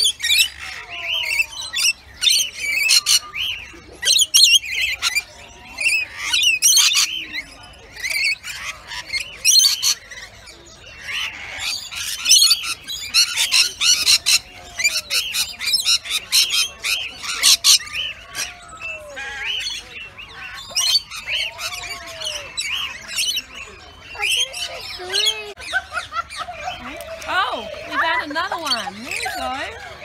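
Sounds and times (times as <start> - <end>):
parrots calling: 0.0 - 30.0.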